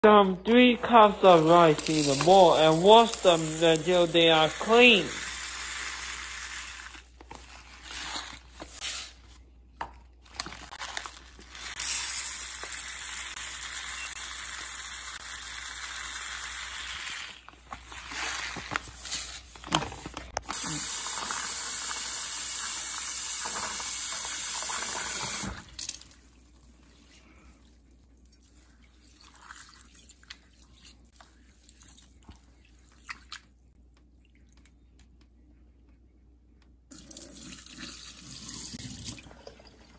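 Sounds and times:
tap water running into sink: 20.5 - 26.0.

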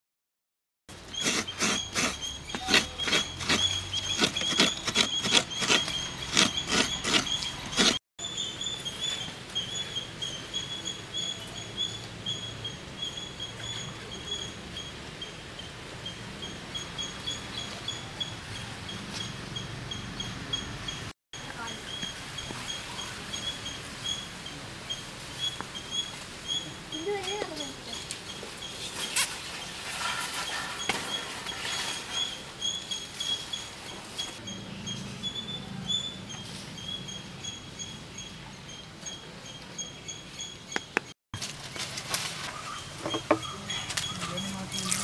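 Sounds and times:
high steady chirping: 1.0 - 28.9.

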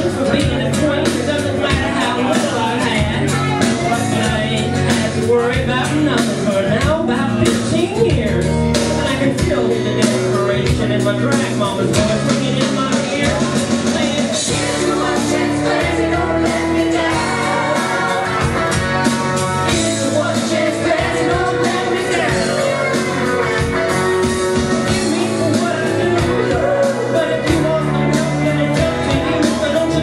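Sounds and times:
person singing into a microphone: 0.0 - 30.0
rock and roll backing music: 0.0 - 30.0.

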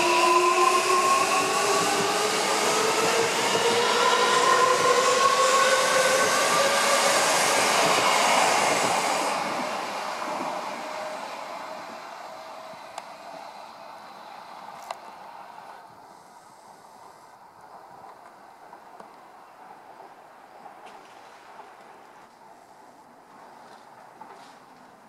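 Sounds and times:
wheels rushing on rail: 0.0 - 16.3.

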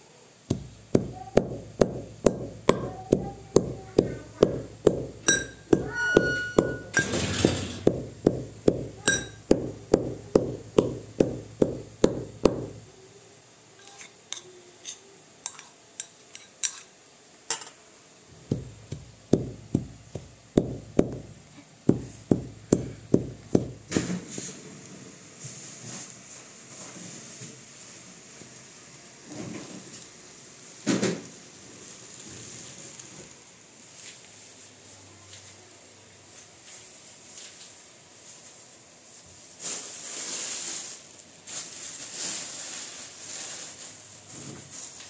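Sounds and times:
brass pestle pounding in mortar: 0.5 - 12.8, 18.4 - 23.9.

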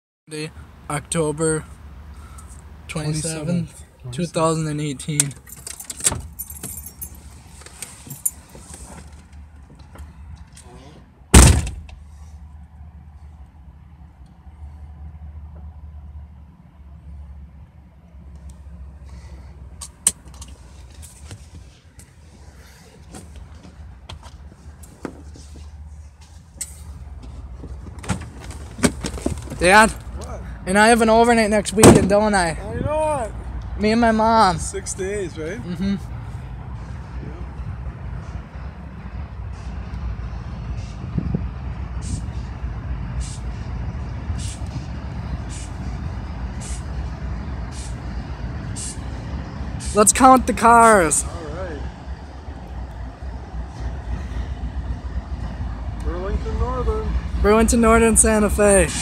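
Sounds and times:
vehicle cabin rumble: 2.2 - 12.6, 18.3 - 30.4
freight train rumble: 36.7 - 59.0
short hiss: 43.2 - 43.6, 45.5 - 45.8, 46.6 - 46.9, 47.7 - 48.0, 48.7 - 49.1.

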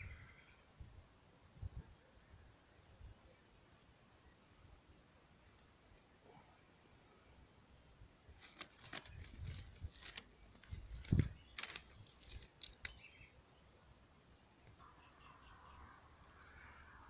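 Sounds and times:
faint cricket chirping: 0.0 - 17.0
rustling of leaves and twigs: 8.3 - 13.2
footfalls in undergrowth: 8.4 - 13.1.

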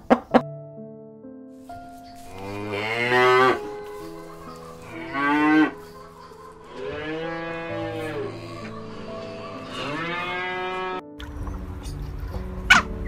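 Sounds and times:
cows mooing: 2.2 - 3.8, 4.8 - 5.9, 6.7 - 11.0.

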